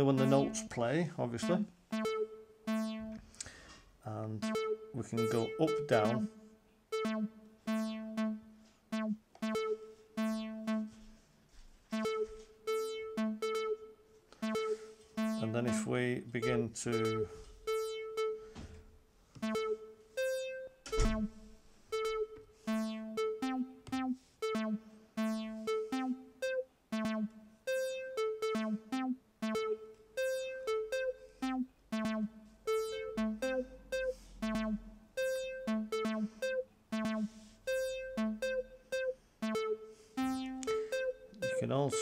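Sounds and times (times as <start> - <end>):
short synth notes loop: 0.0 - 11.2, 11.8 - 42.0.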